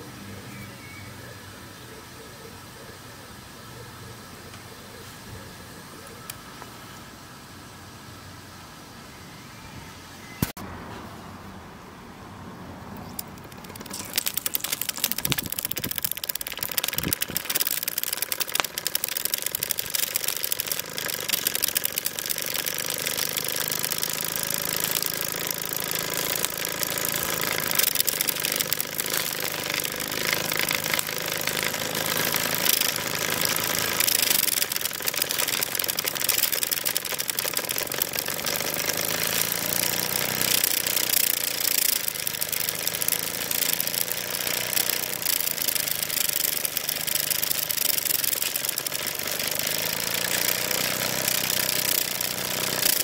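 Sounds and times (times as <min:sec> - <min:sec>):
model steam engine clattering: 0:13.2 - 0:53.0.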